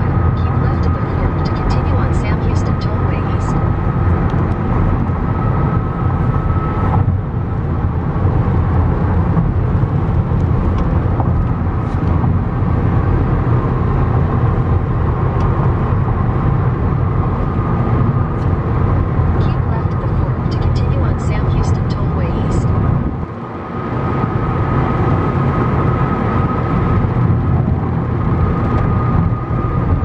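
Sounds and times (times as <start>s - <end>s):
car cabin road noise: 0.0s - 30.0s.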